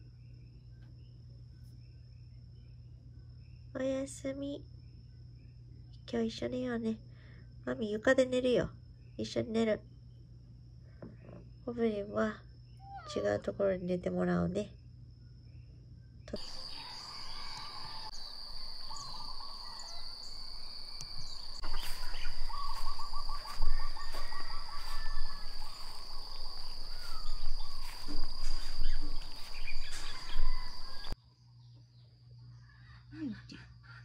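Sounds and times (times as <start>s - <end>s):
birds chirping: 16.3s - 31.2s
high-pitched insect drone: 16.4s - 31.2s.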